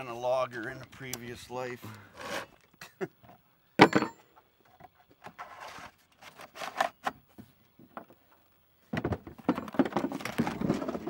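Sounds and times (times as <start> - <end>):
metal clink: 3.8 - 4.3.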